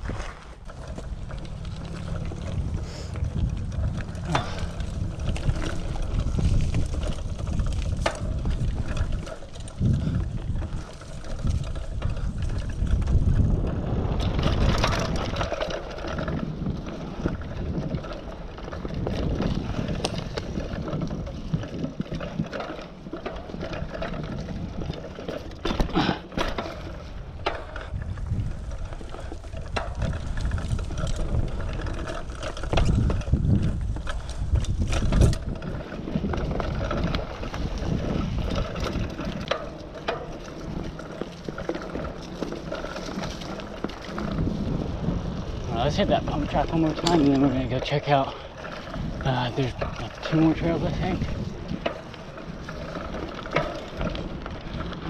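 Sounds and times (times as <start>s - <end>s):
bike rattling over bumps: 0.0s - 55.0s
bike tyres on dirt and leaves: 0.0s - 55.0s
wind buffeting microphone: 0.0s - 55.0s.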